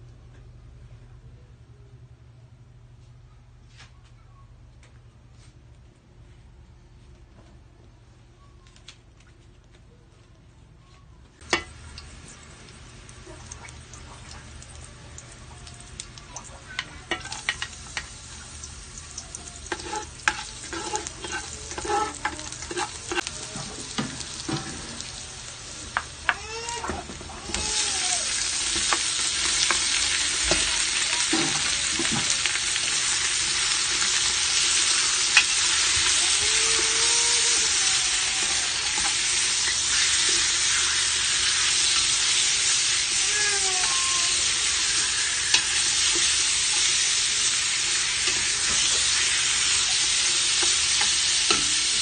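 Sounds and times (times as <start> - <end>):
garlic frying in oil: 11.4 - 52.0
loud sizzle of meat frying: 11.4 - 52.0
ladle scraping a pot: 19.6 - 23.3.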